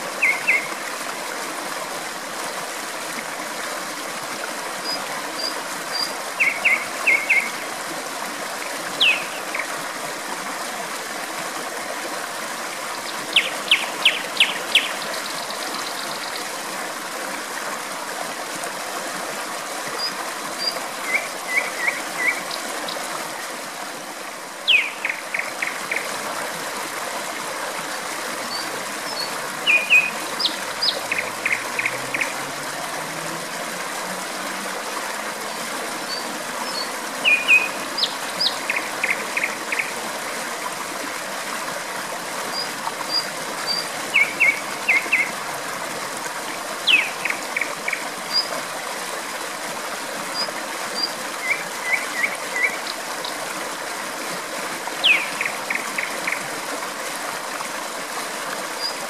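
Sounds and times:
flowing water rushing: 0.0s - 59.0s
nightingale singing: 0.2s - 0.7s, 6.0s - 7.5s, 9.0s - 9.6s, 24.7s - 25.2s, 28.6s - 32.3s, 36.1s - 39.9s, 46.9s - 48.0s, 55.0s - 55.5s.

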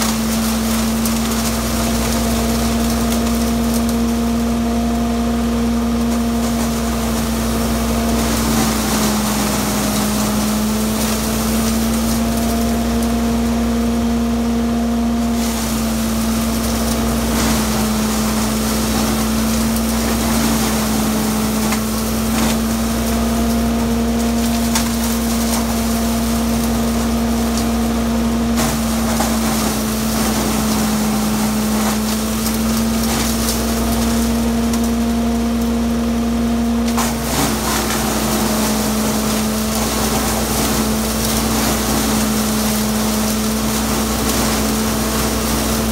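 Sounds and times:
wood cracking and snapping: 0.0s - 4.6s, 15.4s - 27.9s, 28.5s - 35.7s, 36.8s - 45.9s
chipper shredder humming: 0.0s - 45.9s.

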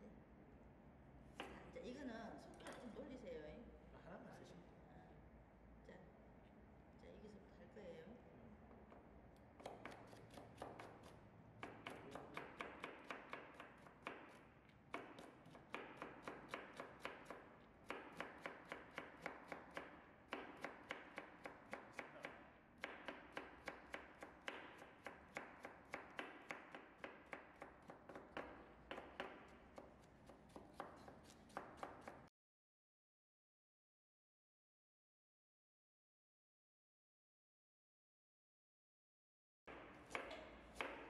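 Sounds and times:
knife chopping on plastic board: 9.6s - 32.3s, 39.7s - 41.0s.

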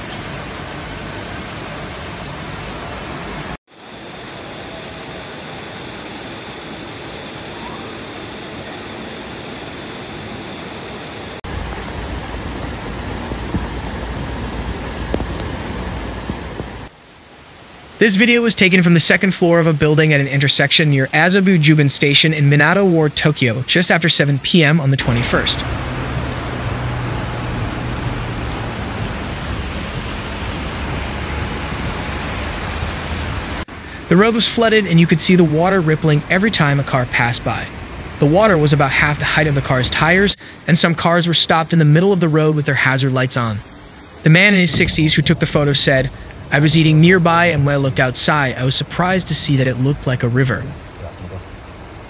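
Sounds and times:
downpour on flooded road: 0.0s - 9.8s, 11.0s - 52.0s
heavy rain: 0.0s - 52.0s
low steady hum: 0.0s - 52.0s
cars driving through water: 24.8s - 52.0s.

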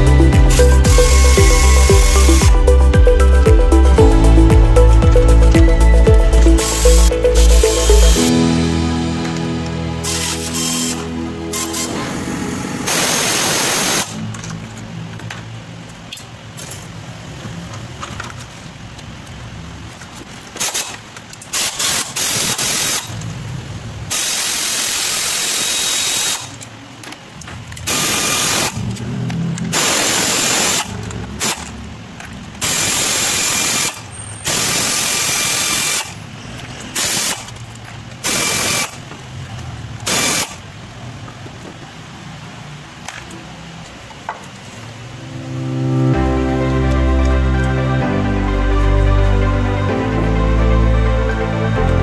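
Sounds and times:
pneumatic air ratchet hissing: 0.5s - 2.5s, 6.6s - 8.2s, 10.0s - 12.0s, 20.6s - 23.2s, 24.1s - 26.6s, 27.9s - 28.8s, 29.7s - 31.7s, 32.6s - 36.2s, 36.9s - 37.6s, 38.2s - 39.0s, 40.1s - 40.6s.

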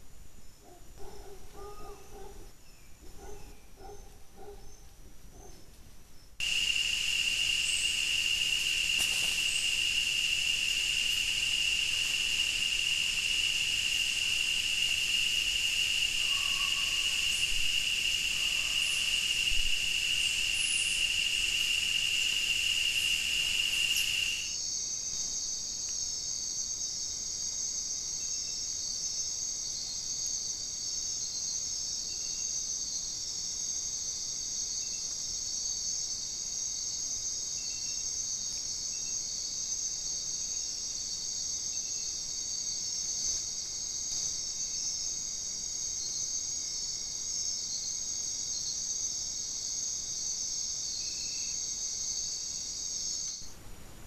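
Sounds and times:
insects trilling: 6.2s - 53.6s
high insect drone: 6.4s - 54.0s.

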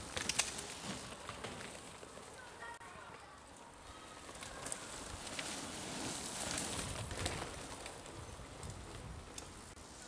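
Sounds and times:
bike clicks and knocks: 0.0s - 2.0s
bike tyres rolling over dirt: 0.0s - 10.0s.

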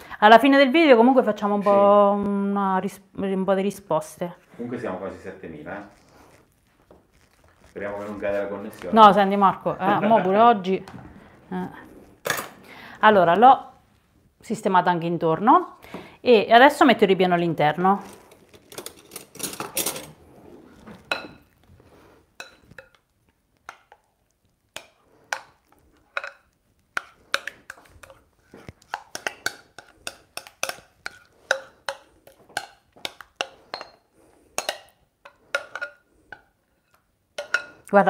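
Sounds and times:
spoon scraping glass bowl: 18.0s - 23.0s, 24.8s - 37.8s.

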